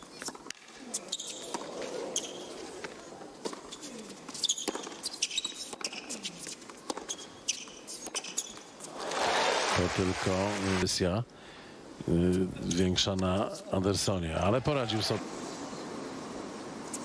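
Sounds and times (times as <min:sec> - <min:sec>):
shoes squeaking on court: 0:00.0 - 0:09.2.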